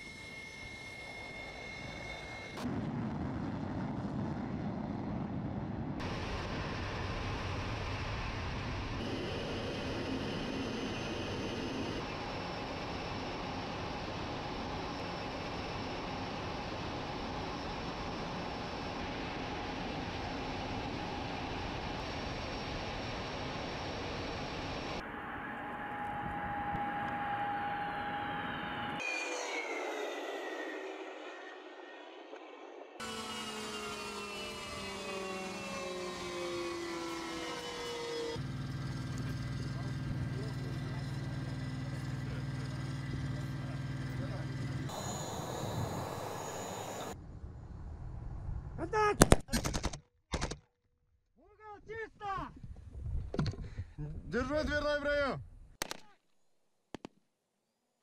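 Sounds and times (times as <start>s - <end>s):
fighter jet roar taking off: 0.0s - 14.8s, 18.2s - 38.4s, 44.2s - 47.2s
jet turbine whine: 0.0s - 48.4s.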